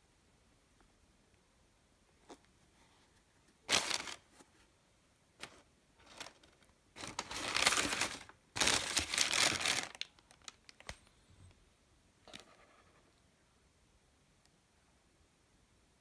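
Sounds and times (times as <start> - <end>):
tissue paper crinkling: 3.6 - 4.3, 5.4 - 11.0.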